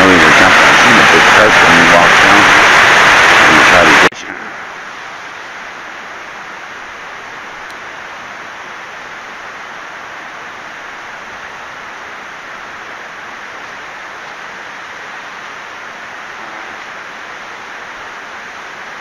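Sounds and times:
steady rushing noise: 0.0 - 19.0.

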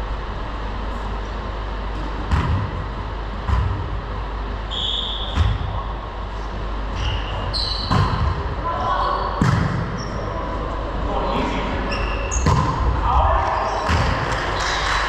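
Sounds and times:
hum of large hall: 0.0 - 15.0
short high squeak: 7.0 - 7.9.

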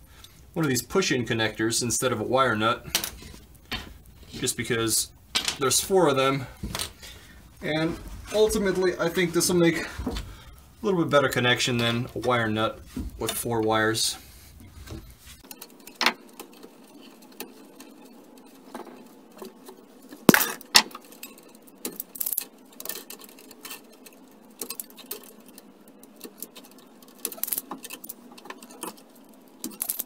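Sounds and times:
wire cutters clicking and snipping: 20.3 - 30.0.

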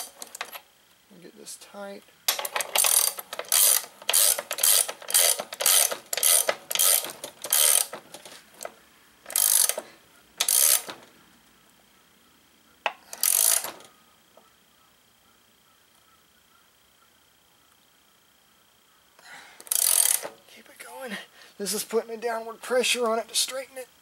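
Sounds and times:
ratchet wrench clicking: 0.0 - 0.6, 2.3 - 11.0, 12.8 - 13.9, 19.6 - 20.4.

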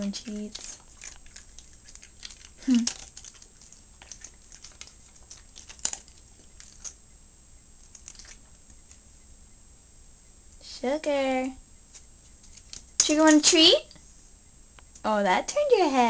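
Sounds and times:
dog crunching kibble: 0.0 - 7.0, 7.8 - 8.6.

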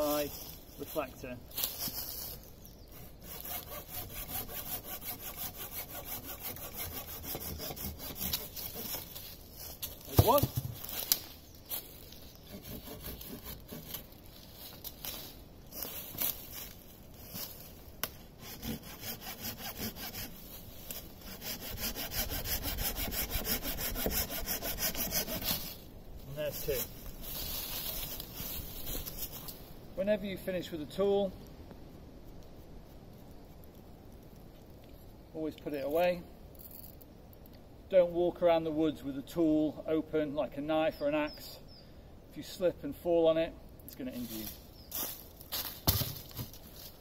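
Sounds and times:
hand saw cutting wood: 3.0 - 9.2, 12.5 - 14.1, 18.4 - 25.7.

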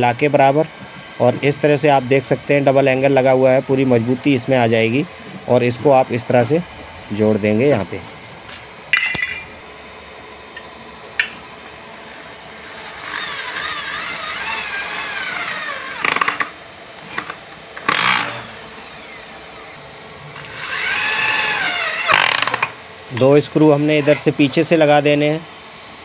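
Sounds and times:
electric drill boring into metal: 12.6 - 16.4, 17.8 - 19.8, 20.4 - 22.7.

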